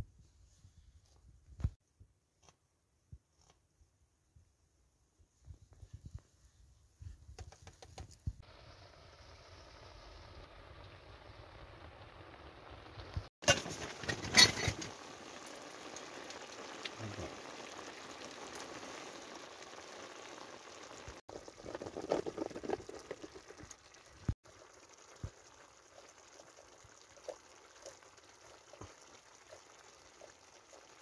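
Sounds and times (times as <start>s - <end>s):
quiet simmering: 5.3s - 31.0s
meat and onions sizzling in a pot: 8.4s - 31.0s.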